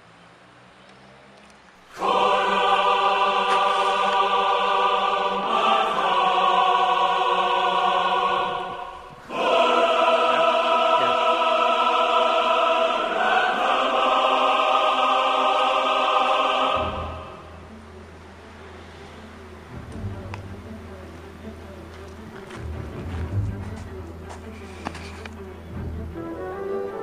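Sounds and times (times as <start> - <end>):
choir singing held chords: 1.8 - 24.5.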